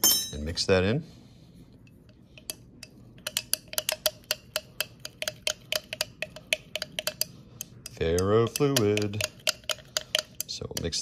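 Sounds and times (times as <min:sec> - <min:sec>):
metal stirrer clinking on glass: 0:07.9 - 0:11.0.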